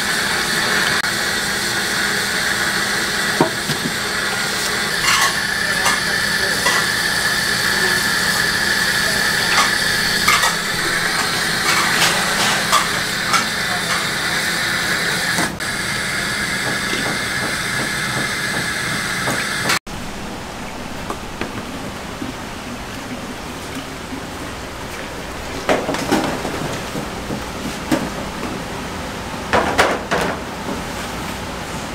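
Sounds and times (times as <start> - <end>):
tap water running into sink: 3.2 - 13.6, 20.6 - 28.5.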